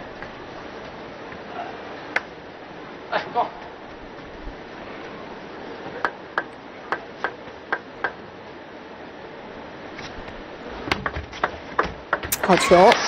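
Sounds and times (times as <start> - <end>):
table tennis ball bouncing: 10.9 - 13.0.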